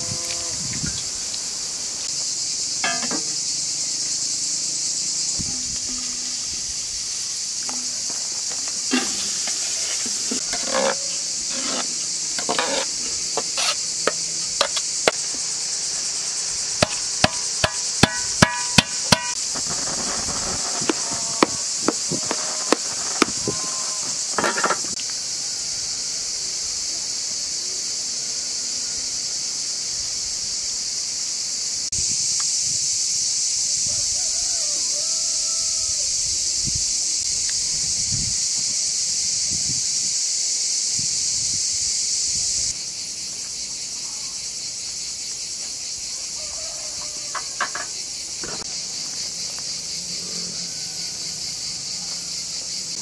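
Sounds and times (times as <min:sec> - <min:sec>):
high-pitched insect chorus: 0:00.0 - 0:53.0
metal utensil clinking on pot: 0:02.8 - 0:03.3.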